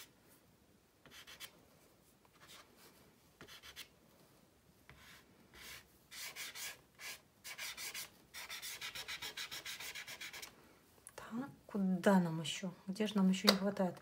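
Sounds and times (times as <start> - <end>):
pastel scratching on paper: 1.0 - 1.5, 3.4 - 3.9, 4.9 - 10.5.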